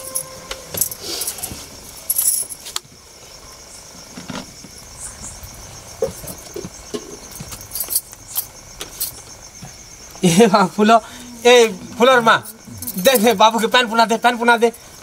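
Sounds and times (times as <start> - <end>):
metallic jingle: 0.0 - 2.6, 12.1 - 13.8
crickets chirping: 0.0 - 15.0.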